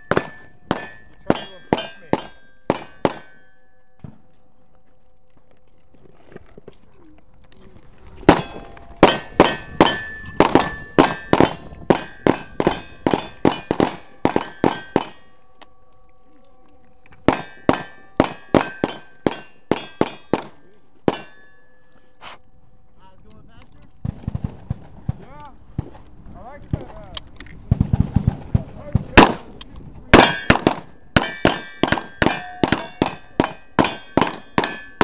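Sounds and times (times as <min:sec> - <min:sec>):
steel plates ringing: 0:00.0 - 0:03.9, 0:08.3 - 0:15.6, 0:17.3 - 0:20.4, 0:21.1 - 0:21.9, 0:30.2 - 0:35.0.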